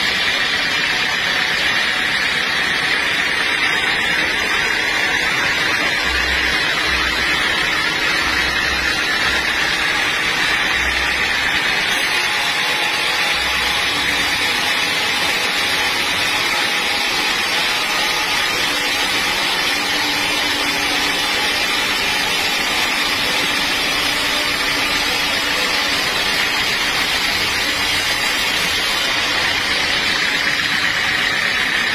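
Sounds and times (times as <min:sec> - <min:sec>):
band saw cutting log: 0:00.0 - 0:31.9.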